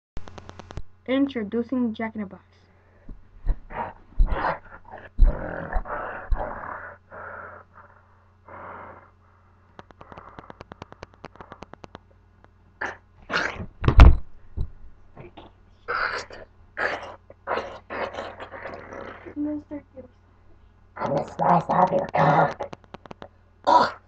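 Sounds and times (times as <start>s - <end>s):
grunts and growls: 3.7s - 7.9s, 23.6s - 24.0s.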